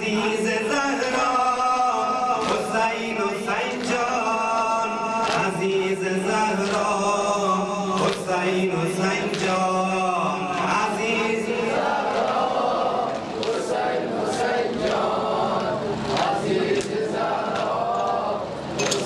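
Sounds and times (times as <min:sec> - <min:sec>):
man chanting into a microphone: 0:00.0 - 0:13.2.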